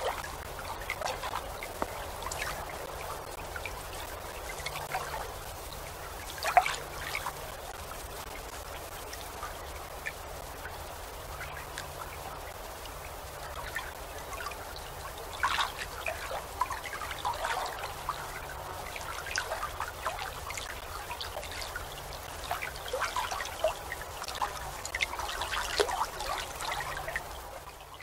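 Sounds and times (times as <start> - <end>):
water splashing and trickling: 0.0 - 28.0.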